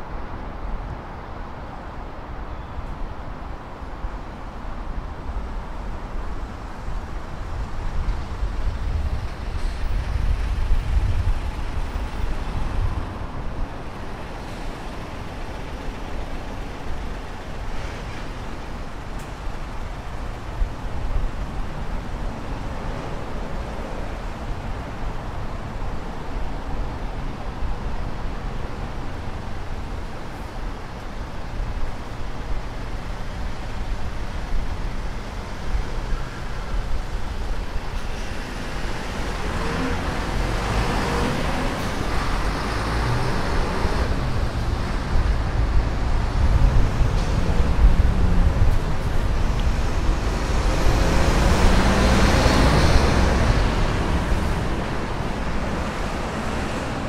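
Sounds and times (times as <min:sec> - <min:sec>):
steady road hum: 0:00.0 - 0:57.0
vehicles passing: 0:00.0 - 0:57.0
heavy vehicle passing: 0:38.1 - 0:57.0.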